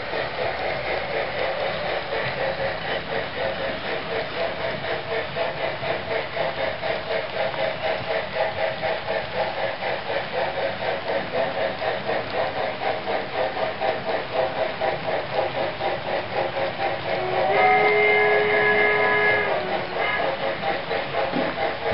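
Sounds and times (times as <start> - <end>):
model train steam chuff: 0.0 - 21.9
cars rolling on track: 10.7 - 21.9.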